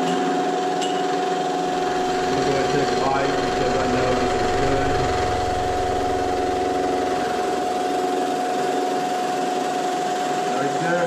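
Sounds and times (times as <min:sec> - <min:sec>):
low rumble: 0:01.6 - 0:09.1
milling machine spindle whine: 0:01.6 - 0:09.7.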